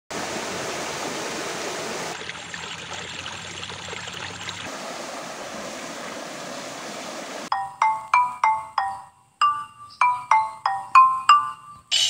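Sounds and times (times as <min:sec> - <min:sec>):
stream water flowing: 0:00.1 - 0:07.5.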